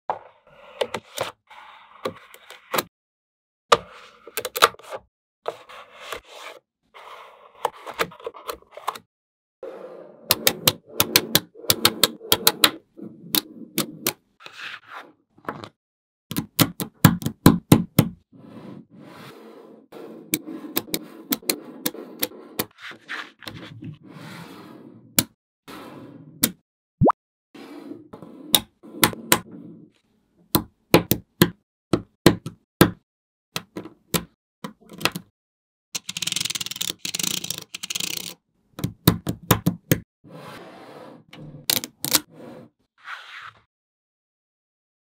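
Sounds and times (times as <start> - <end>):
soft scraping and rolling: 18.4 - 25.1.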